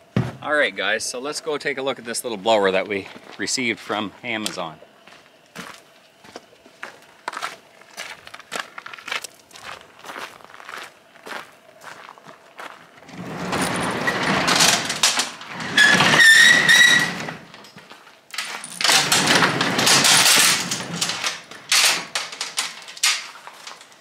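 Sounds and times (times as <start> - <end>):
garage door squeal: 13.0 - 17.7, 18.6 - 22.2
garage door rattling and rumbling: 13.0 - 17.8, 18.4 - 24.0.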